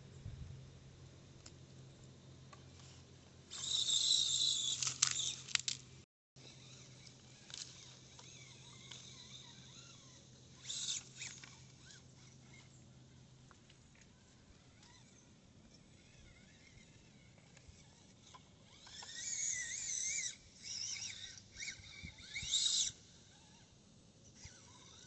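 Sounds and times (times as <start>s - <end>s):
rustling in dry leaves: 2.8s - 5.8s.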